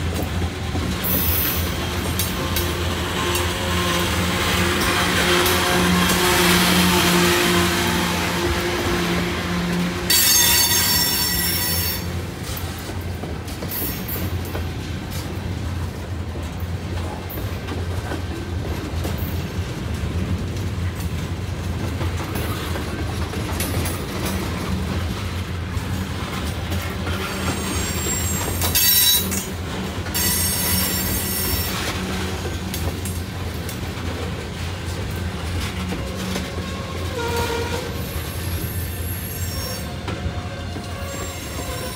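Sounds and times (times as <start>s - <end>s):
freight train cars rumbling: 0.0s - 41.9s
train wheels squealing: 10.1s - 12.2s, 27.0s - 29.5s, 30.1s - 32.0s, 36.0s - 41.9s.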